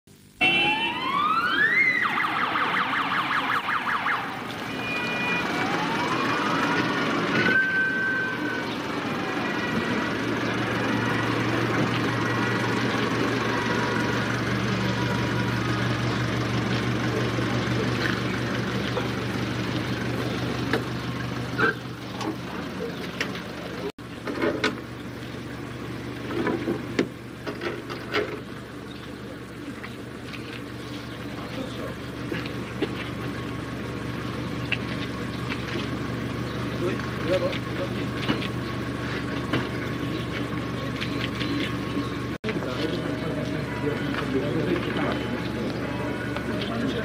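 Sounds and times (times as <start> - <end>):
siren wailing and yelping: 0.4 - 14.3.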